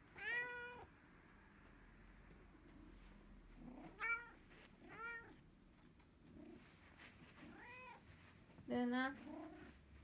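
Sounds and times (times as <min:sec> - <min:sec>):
cat meowing: 0:00.1 - 0:00.9, 0:03.9 - 0:05.4.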